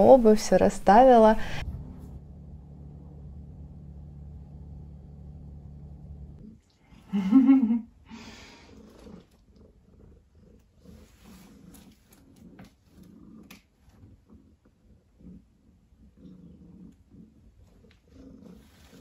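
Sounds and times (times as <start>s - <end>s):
cat purring: 8.1s - 19.0s.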